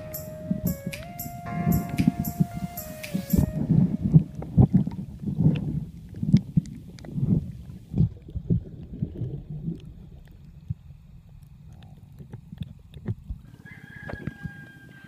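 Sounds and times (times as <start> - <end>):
muffled underwater water movement: 3.4 - 14.4.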